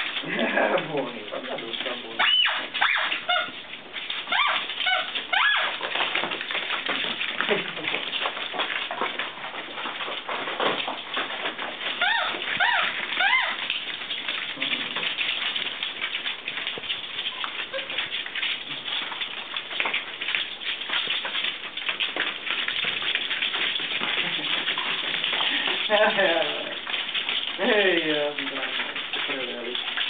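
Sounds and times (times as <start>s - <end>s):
puppies scrabbling on a hard floor: 0.0s - 30.0s
puppy whimpering: 2.2s - 3.6s, 4.3s - 5.8s, 12.0s - 13.7s.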